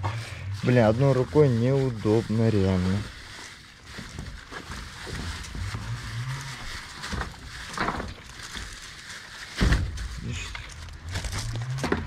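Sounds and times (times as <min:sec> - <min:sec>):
dogs chewing and crunching: 0:00.4 - 0:12.0
low rumble: 0:04.0 - 0:08.2.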